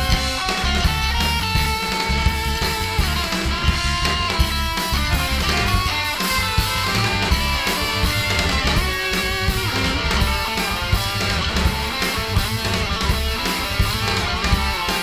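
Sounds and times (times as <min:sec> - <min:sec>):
noise-rock band playing: 0:00.0 - 0:15.0.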